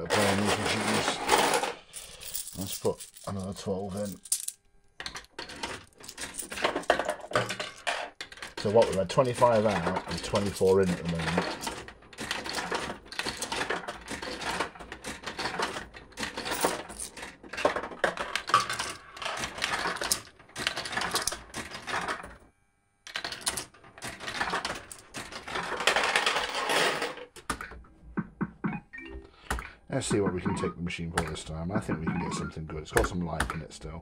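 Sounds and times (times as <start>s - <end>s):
fruit machine clattering: 0.0s - 1.6s, 5.1s - 22.3s, 23.1s - 27.7s.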